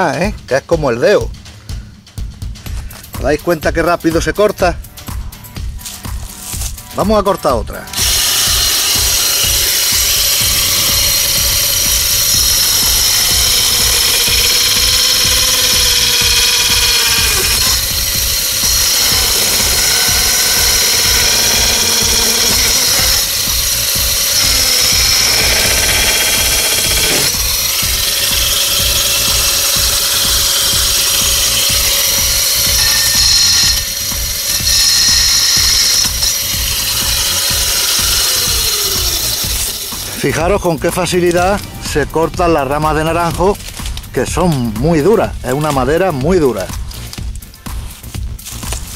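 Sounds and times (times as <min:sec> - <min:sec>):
background music with a beat: 0:00.0 - 0:48.9
electric chainsaw whining: 0:07.9 - 0:41.7.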